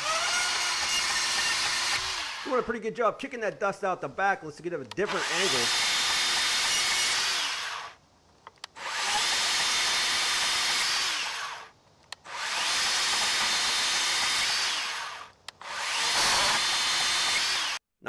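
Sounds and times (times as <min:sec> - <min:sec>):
band saw cutting wood: 0:00.0 - 0:02.7, 0:05.0 - 0:08.0, 0:08.8 - 0:11.7, 0:12.3 - 0:17.8
small clicks: 0:08.4 - 0:08.8, 0:11.9 - 0:12.3, 0:15.3 - 0:15.6.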